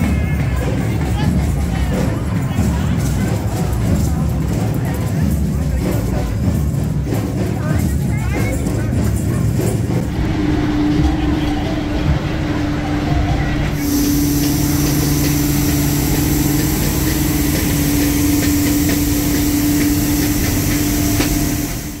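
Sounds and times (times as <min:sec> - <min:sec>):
street sweeper engine drone: 0:09.6 - 0:22.0
rotating brushes and suction hiss: 0:10.0 - 0:22.0.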